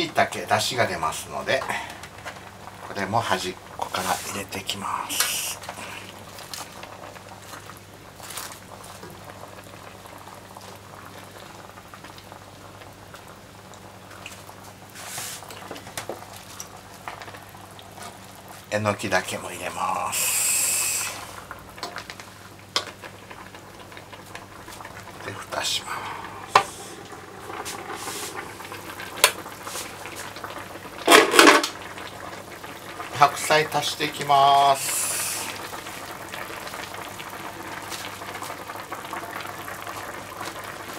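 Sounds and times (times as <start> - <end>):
broth simmering crackly bubbling: 0.0 - 40.9
pan lid clattering: 31.1 - 31.8.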